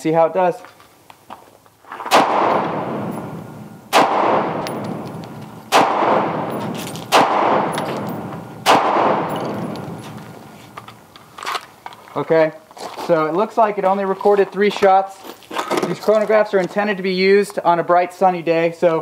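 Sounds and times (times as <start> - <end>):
rifle gunshots with echo: 2.1 - 10.6.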